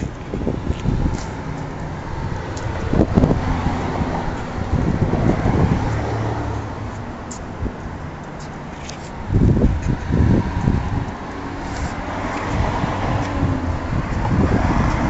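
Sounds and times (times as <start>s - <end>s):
low traffic rumble: 0.0s - 15.0s
vehicle passing: 0.0s - 15.0s
wind on microphone: 0.0s - 15.0s.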